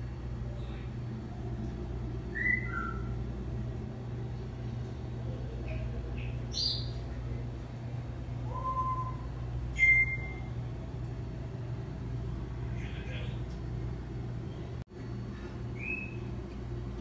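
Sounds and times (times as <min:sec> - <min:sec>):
low hum: 0:00.0 - 0:17.0
high chirps: 0:08.5 - 0:10.5.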